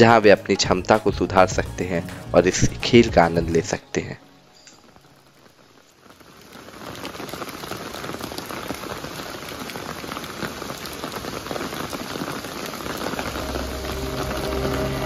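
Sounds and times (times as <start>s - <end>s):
music: 0.0s - 5.4s, 12.9s - 15.0s
rain pattering: 0.0s - 15.0s.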